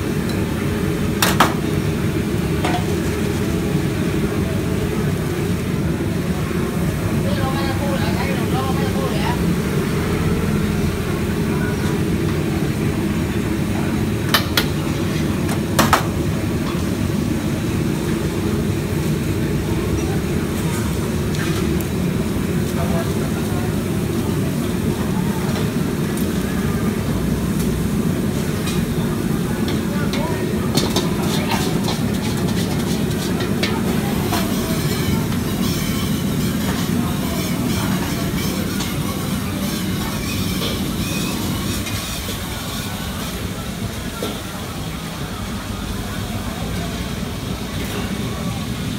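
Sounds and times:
woks and utensils clanking: 0.0s - 9.9s, 10.9s - 45.1s
gas burners rumbling: 0.0s - 48.9s
metal spatula scraping wok: 29.7s - 43.4s.

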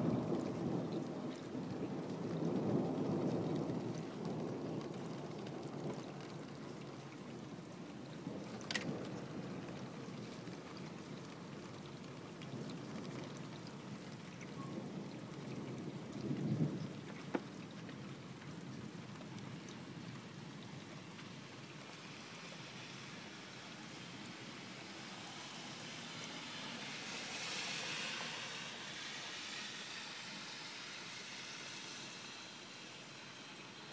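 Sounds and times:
low thunder rumble: 0.0s - 21.8s
steady rain: 0.0s - 33.9s
hiss: 21.3s - 33.9s.

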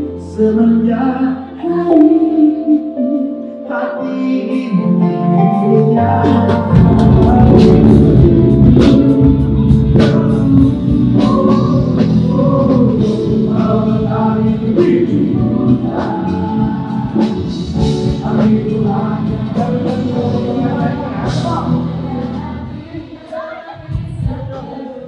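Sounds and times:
live band playing: 0.0s - 24.2s
group of singers singing: 0.0s - 25.0s
bass guitar: 4.8s - 22.9s
drum strikes: 6.2s - 21.8s.

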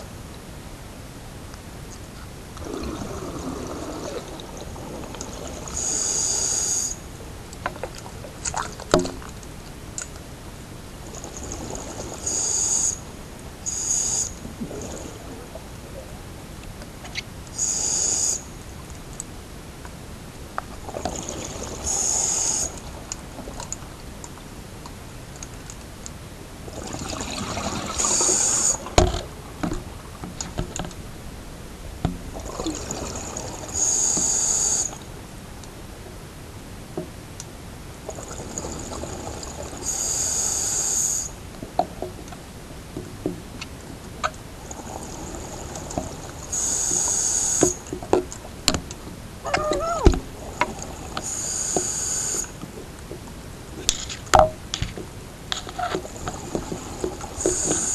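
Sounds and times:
bubbling: 2.6s - 6.1s, 11.0s - 12.4s, 14.4s - 16.3s, 20.6s - 24.5s, 26.6s - 30.7s, 32.1s - 33.9s, 38.0s - 40.1s, 44.2s - 48.6s.

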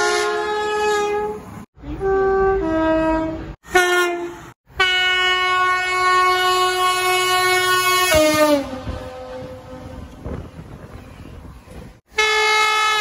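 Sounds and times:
locomotive horn blasts: 0.0s - 10.4s, 12.1s - 13.0s
rumble of passing wagons: 8.6s - 12.0s.

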